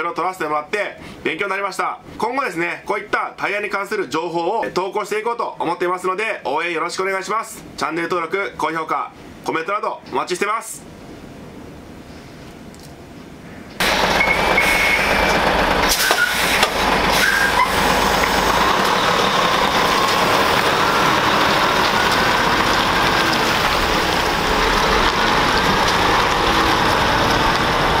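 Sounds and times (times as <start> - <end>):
diesel truck engine and tyres: 13.8 - 28.0
trailer knocks and rattles: 13.8 - 28.0.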